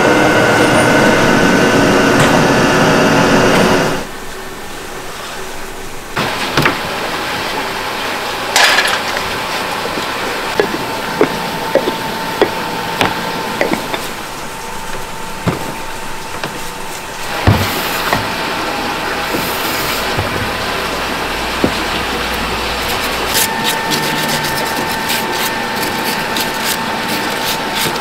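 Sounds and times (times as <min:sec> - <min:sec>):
factory machinery hum: 0:00.0 - 0:28.0
pots knocking down on stacks: 0:08.6 - 0:09.1.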